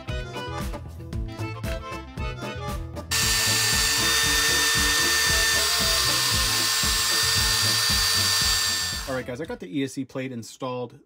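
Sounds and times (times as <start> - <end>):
background music: 0.0 - 9.9
power drill whine: 3.1 - 9.2.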